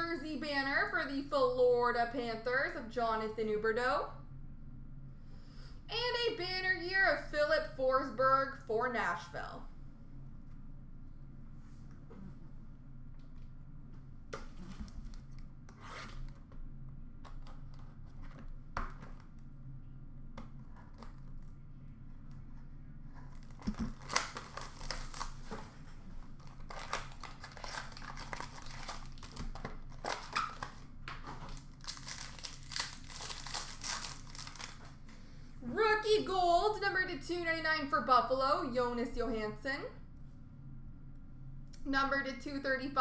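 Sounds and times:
wrapper crinkling and tearing: 23.3 - 35.0.

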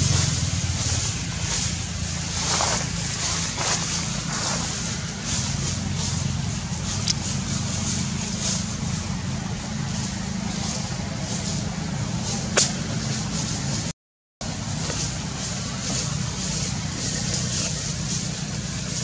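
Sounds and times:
low outdoor rumble: 0.0 - 19.0.

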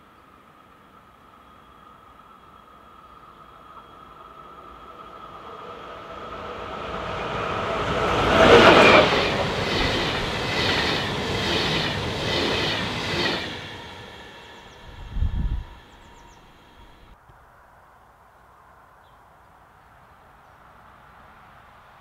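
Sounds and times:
electric train passing at speed: 0.0 - 17.2
train wheels clattering: 7.9 - 14.8.

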